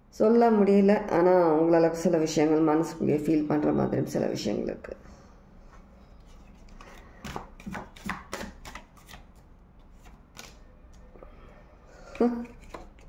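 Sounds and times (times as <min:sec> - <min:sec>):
cards tapping on glass table: 0:07.2 - 0:09.2.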